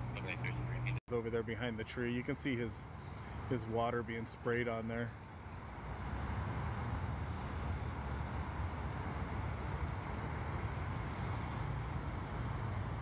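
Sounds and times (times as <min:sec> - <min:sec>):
freeway traffic rumble: 0:00.0 - 0:13.0.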